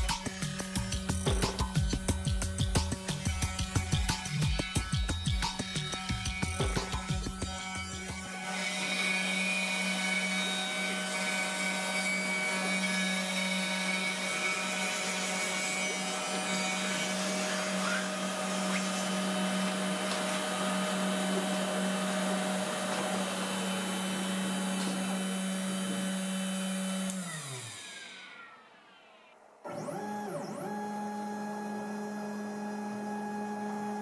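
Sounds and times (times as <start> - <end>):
router spindle milling wood: 0.0 - 34.0
vacuum hose sucking: 13.5 - 32.4.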